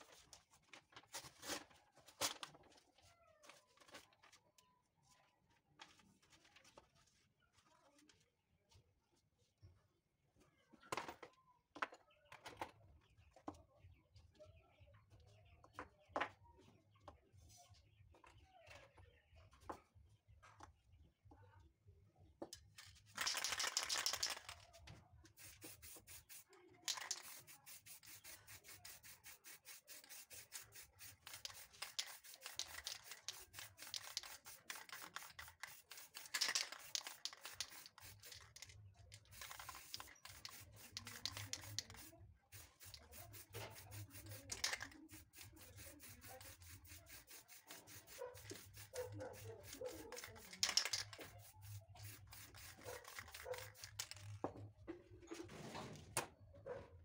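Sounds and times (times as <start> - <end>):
paper rubbing on paint: 25.3 - 54.3
aerosol spray can hissing: 25.4 - 38.6, 39.3 - 54.0.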